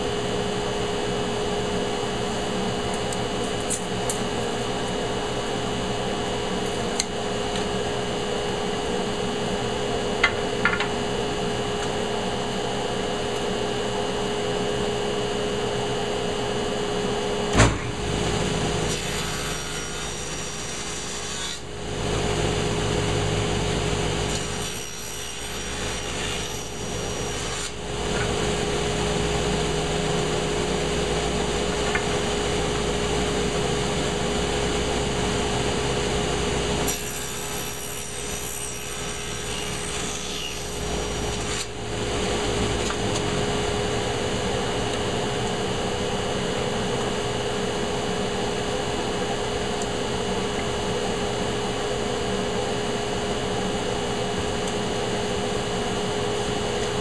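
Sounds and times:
saw blade cutting wood: 17.9 - 21.7, 24.2 - 28.4, 36.8 - 43.1
table saw motor humming: 17.9 - 45.8.

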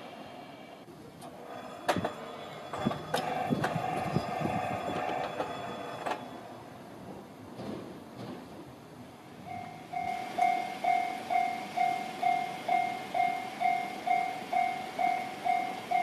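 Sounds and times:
train clicks and knocks: 1.2 - 8.8
train wheel squeal: 1.4 - 6.7, 9.5 - 16.0.

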